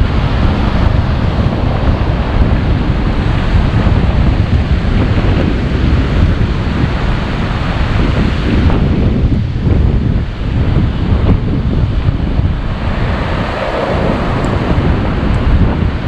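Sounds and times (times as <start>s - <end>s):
wind buffeting microphone: 0.0s - 16.0s
small waves breaking on sand: 11.8s - 16.0s.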